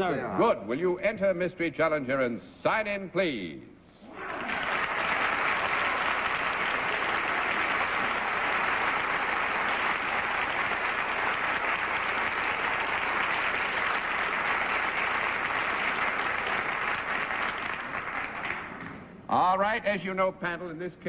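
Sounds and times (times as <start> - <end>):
audience applauding: 4.0 - 19.1.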